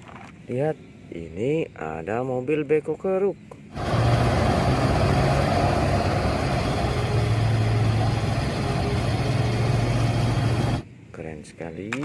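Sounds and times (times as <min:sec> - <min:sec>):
heavy diesel machinery running: 0:03.7 - 0:10.9.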